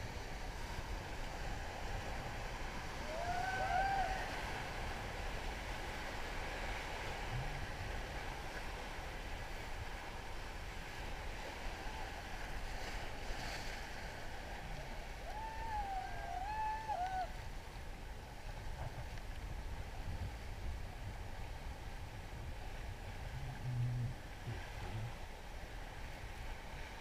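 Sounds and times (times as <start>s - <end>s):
river water rushing: 0.0s - 18.5s
wind noise on microphone: 0.0s - 27.0s
faint shouts: 3.0s - 4.4s, 15.1s - 17.4s.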